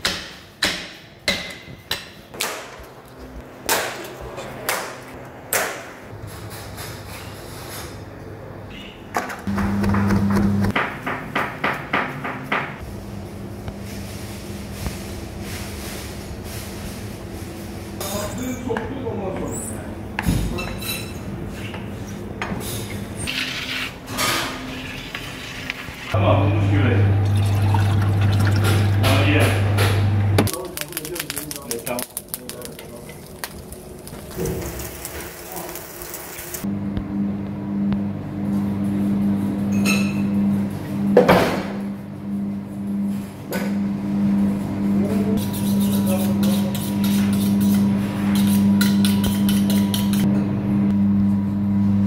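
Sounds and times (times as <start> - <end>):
kitchen clatter: 45.4 - 50.3.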